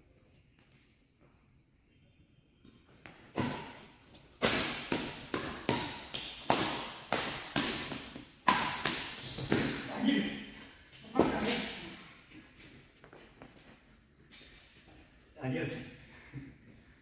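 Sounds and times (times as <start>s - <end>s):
rackets hitting shuttlecock: 3.0s - 9.9s.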